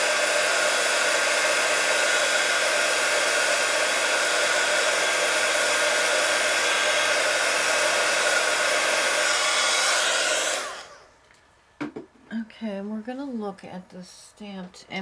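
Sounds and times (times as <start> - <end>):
fan winding down: 0.0 - 11.1
hot-air tool blowing: 0.0 - 11.2.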